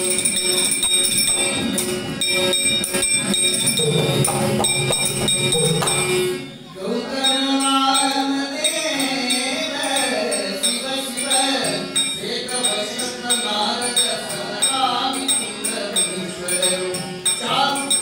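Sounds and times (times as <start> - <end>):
hand cymbals clinking: 0.0 - 6.5, 7.2 - 18.0
harmonium: 0.0 - 18.0
tabla: 0.0 - 18.0
man singing devotional song: 6.8 - 18.0.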